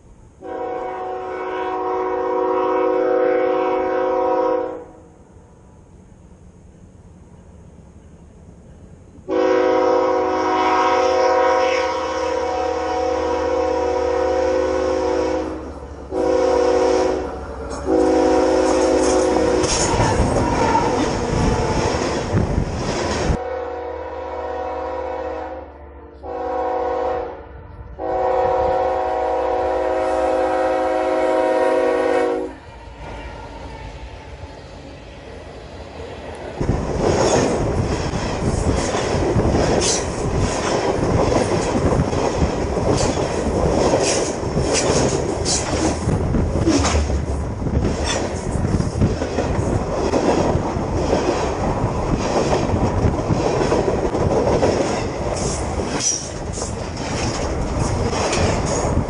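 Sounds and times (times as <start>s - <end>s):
locomotive air horn blasts: 0.4s - 5.0s, 9.3s - 21.8s, 23.4s - 34.5s
train rolling with heavy rumble: 5.2s - 23.6s, 26.1s - 59.0s
wheels clattering on rails: 18.7s - 23.4s, 36.6s - 59.0s.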